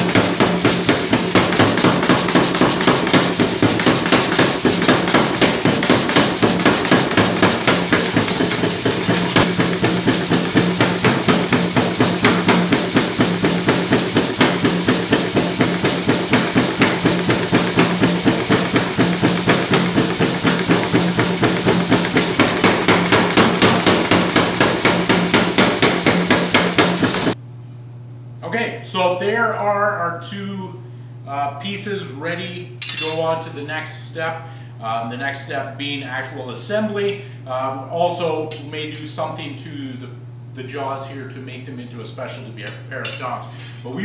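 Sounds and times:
power hammer striking hot steel: 0.0s - 27.4s, 32.8s - 33.3s.

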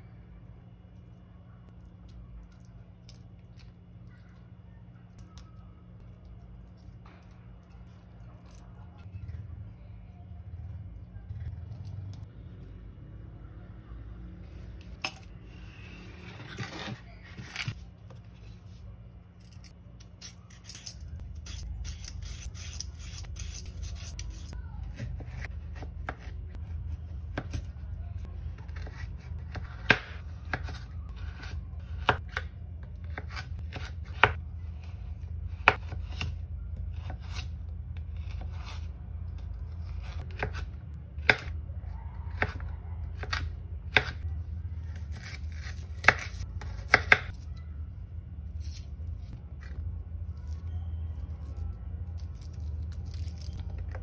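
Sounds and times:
knife slicing carrot: 44.9s - 47.4s.

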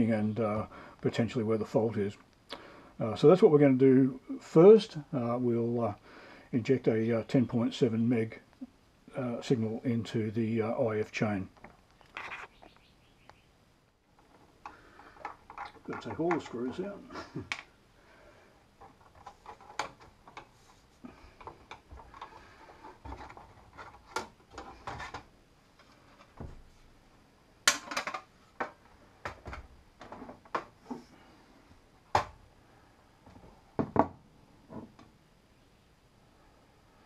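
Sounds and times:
small metal scrapes and clatter: 12.0s - 12.6s.

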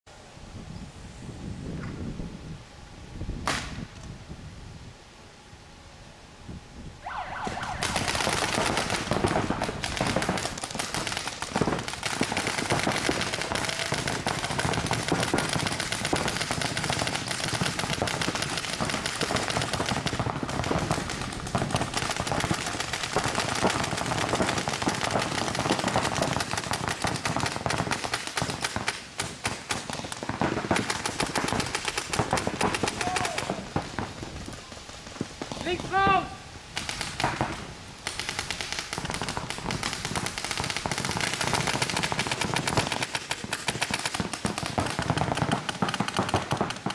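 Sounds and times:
paintball markers firing rapidly: 7.4s - 20.1s, 38.2s - 46.9s.

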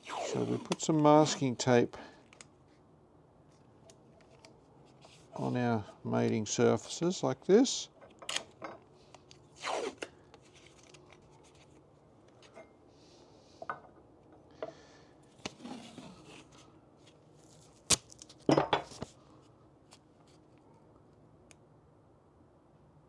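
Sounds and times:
masking tape ripping: 0.0s - 0.9s, 9.6s - 10.1s, 17.5s - 18.4s.

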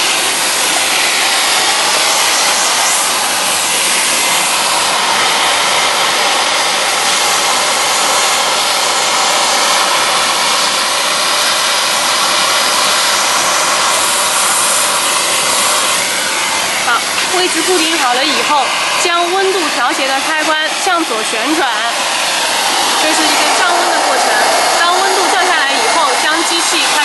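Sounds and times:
hot air gun blowing: 0.0s - 27.0s.

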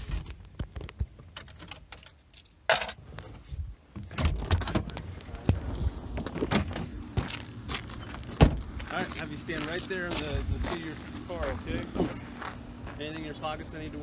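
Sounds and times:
car door and seat knocks: 8.4s - 8.6s.

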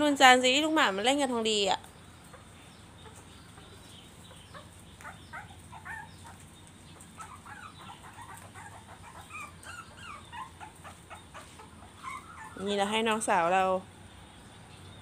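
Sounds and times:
puppy whimpering: 4.5s - 13.0s.

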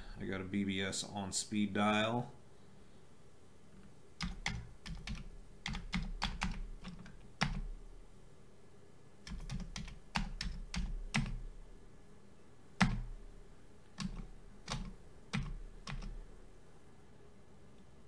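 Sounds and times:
keyboard keystrokes: 4.2s - 7.6s, 9.3s - 11.4s, 12.8s - 13.1s, 14.0s - 16.2s.

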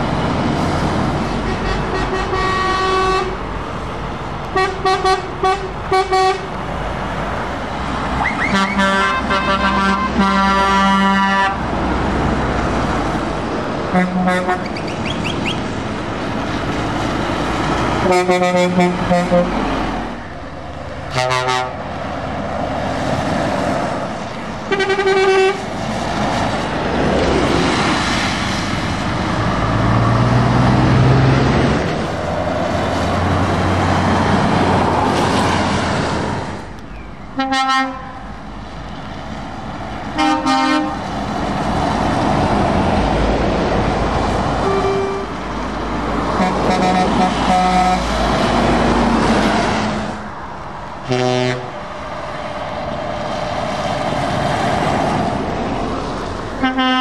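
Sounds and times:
trucks passing on wet road: 0.0s - 57.0s
truck horns: 1.2s - 3.6s, 4.4s - 6.6s, 8.1s - 11.8s, 13.8s - 15.7s, 17.6s - 20.0s, 21.1s - 21.9s, 24.6s - 25.8s, 37.3s - 38.4s, 40.1s - 41.1s, 44.5s - 50.2s, 51.0s - 51.9s, 56.5s - 57.0s.

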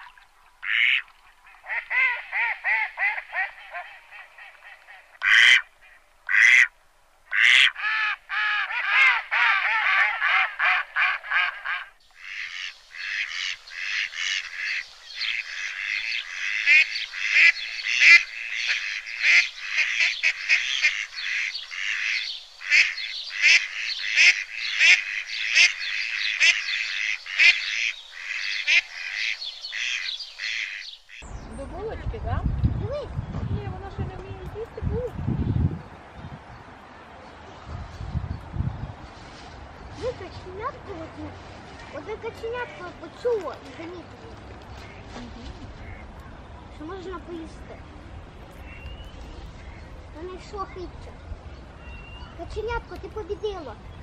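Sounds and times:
short loud duckling calls: 1.6s - 6.7s, 7.3s - 31.3s
ducklings peeping: 12.2s - 31.3s.

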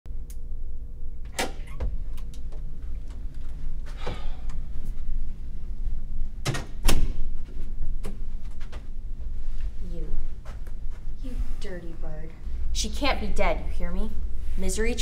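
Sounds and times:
door clicks and knocks: 6.4s - 7.2s.

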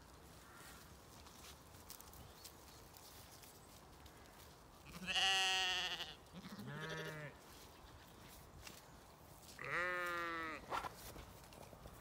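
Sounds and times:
sheep bleating: 4.9s - 7.4s, 9.6s - 10.6s.

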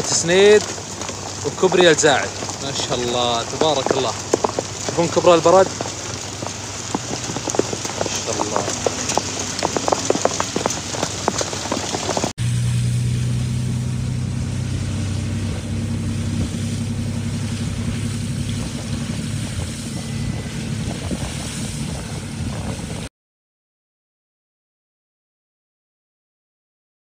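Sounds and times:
hailstones pelting the ground: 0.0s - 12.3s, 14.5s - 23.1s
road and wind noise: 0.0s - 23.1s
vehicle engine humming: 0.0s - 23.1s.

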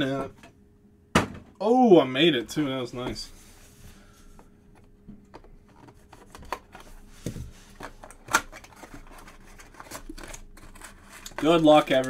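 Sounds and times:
cardboard scratches and crinkles: 5.8s - 12.0s.

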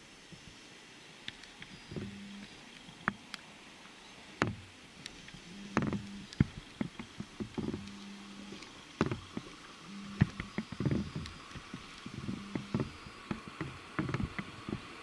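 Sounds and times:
low hum: 1.7s - 3.1s, 4.4s - 15.0s.

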